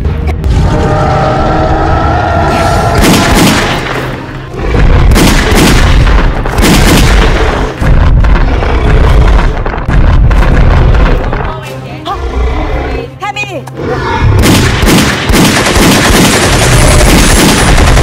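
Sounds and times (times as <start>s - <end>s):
deep rumble: 0.0s - 13.2s
dramatic film music: 0.0s - 18.0s
loud booming blasts: 2.4s - 11.7s, 14.2s - 18.0s.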